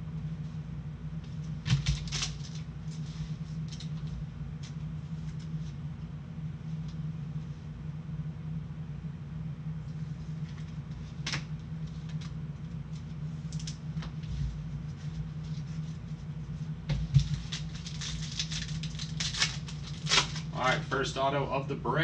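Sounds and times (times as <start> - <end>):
steady low hum: 0.0 - 22.0
plastic wrapper crinkling: 17.2 - 20.6.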